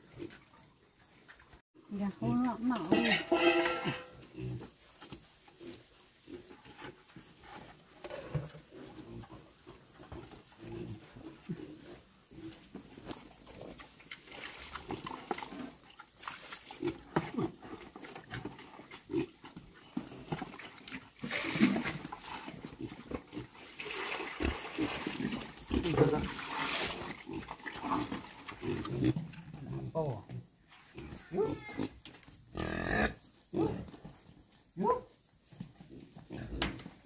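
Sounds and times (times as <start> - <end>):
pigs grunting: 24.3 - 30.2, 30.9 - 34.0.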